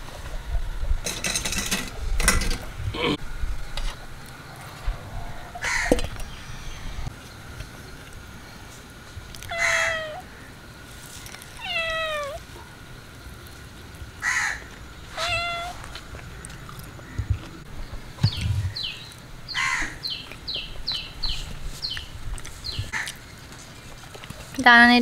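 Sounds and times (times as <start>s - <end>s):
cat meowing: 9.5s - 10.2s, 11.6s - 12.4s, 15.1s - 15.8s
bird chirping: 17.8s - 22.9s.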